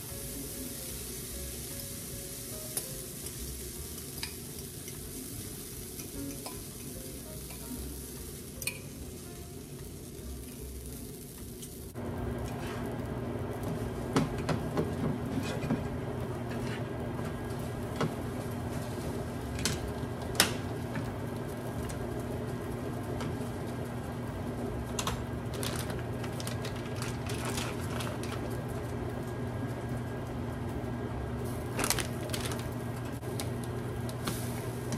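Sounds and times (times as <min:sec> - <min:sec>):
steady low hum: 0:00.0 - 0:34.9
spatula scraping and tapping skillet: 0:16.5 - 0:16.9.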